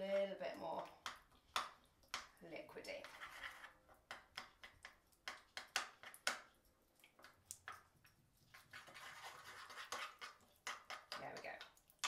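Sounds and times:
spoon scraping a bowl: 0:02.9 - 0:06.6, 0:07.2 - 0:12.0.

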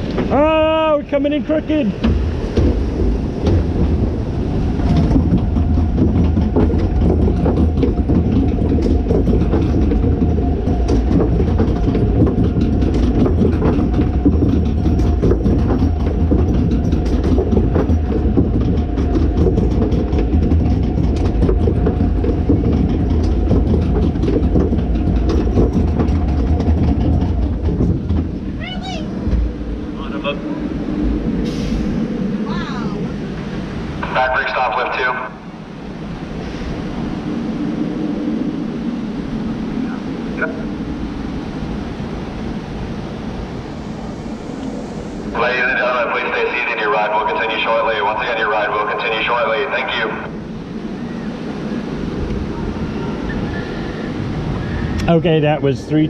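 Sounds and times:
constant hum: 0:00.0 - 0:56.0
ride vehicle rumbling on track: 0:00.0 - 0:56.0
clicks and clacks: 0:02.0 - 0:28.5.

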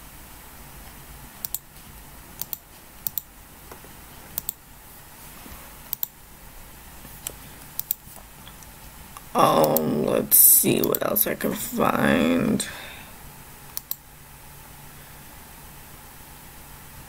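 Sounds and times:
faint steady background noise: 0:00.0 - 0:17.0
computer mouse clicks: 0:01.4 - 0:01.8, 0:02.4 - 0:03.3, 0:04.4 - 0:04.6, 0:05.9 - 0:06.2, 0:07.2 - 0:09.9, 0:13.7 - 0:14.0.

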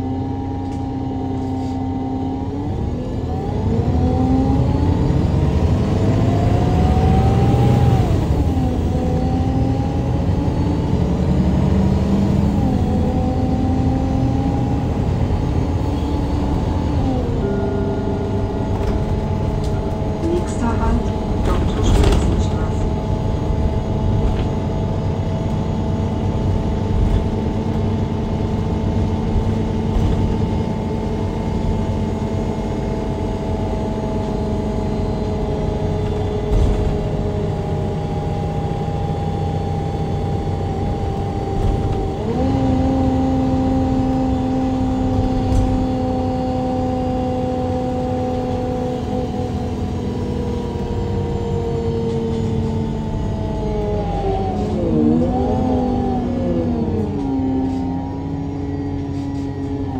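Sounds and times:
bus engine droning: 0:00.0 - 0:59.9
gearbox whining tones: 0:15.0 - 0:26.4.

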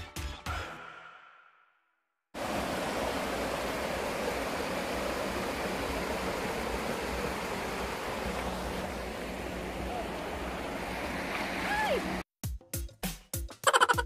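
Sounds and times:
river water rushing over rocks: 0:02.4 - 0:12.2.

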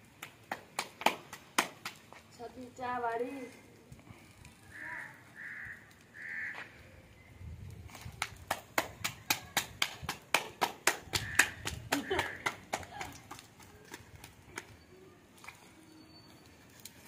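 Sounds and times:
dough slapped between palms: 0:00.2 - 0:02.1, 0:08.1 - 0:13.5.

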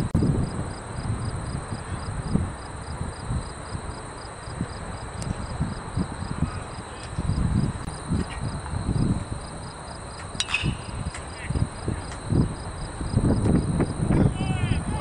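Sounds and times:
insects chirping: 0:00.0 - 0:15.0
metal bat hitting baseball: 0:10.4 - 0:11.1.

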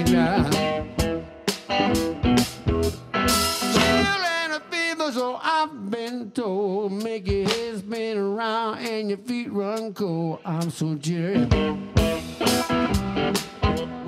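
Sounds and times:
wavering guitar notes with vibrato: 0:00.0 - 0:05.2, 0:10.4 - 0:14.0
electric blues band: 0:00.0 - 0:14.0.

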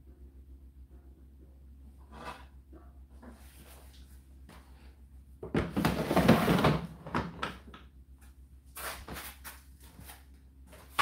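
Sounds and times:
plastic drawer scraping rattle: 0:05.6 - 0:07.3.

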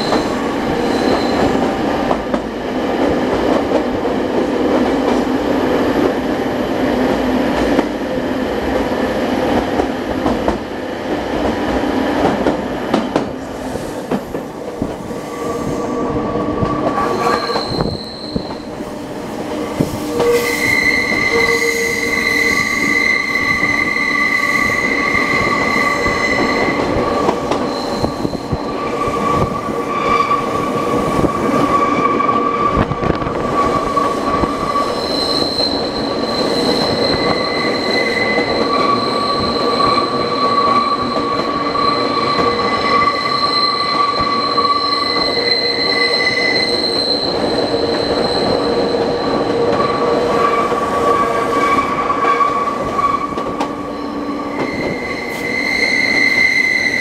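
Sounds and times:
high wheel squeal: 0:00.0 - 0:01.6, 0:17.0 - 0:18.7, 0:20.1 - 0:57.0
train wheels rumbling on rail: 0:00.0 - 0:57.0
rail joint clacks: 0:11.3 - 0:57.0.

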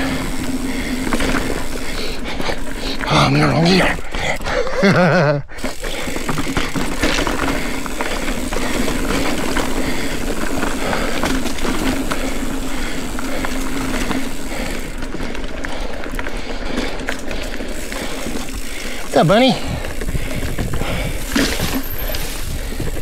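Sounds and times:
bike clicks and rattles: 0:00.0 - 0:23.0
tyre and wind rush: 0:18.2 - 0:23.0.

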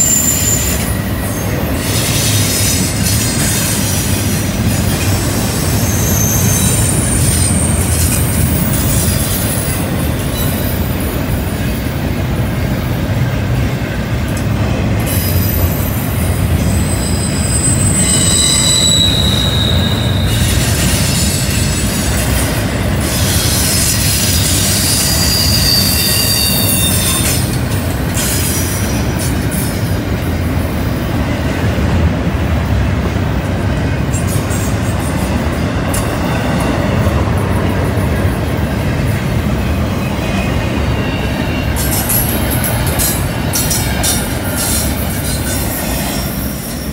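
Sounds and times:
high-pitched wheel squeal: 0:00.0 - 0:03.7, 0:05.6 - 0:11.2, 0:16.6 - 0:22.0, 0:23.1 - 0:27.5
train wheels rumbling on rails: 0:00.0 - 0:46.9.

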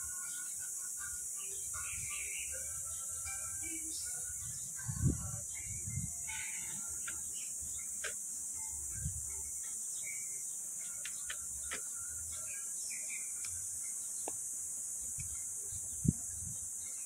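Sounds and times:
bird chirps: 0:00.0 - 0:14.5
high-pitched insect drone: 0:00.0 - 0:17.0
faint clicks: 0:15.2 - 0:15.5.

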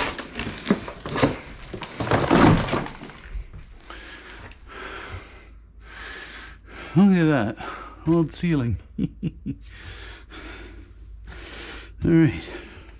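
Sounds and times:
wall material cracking: 0:00.0 - 0:03.8.

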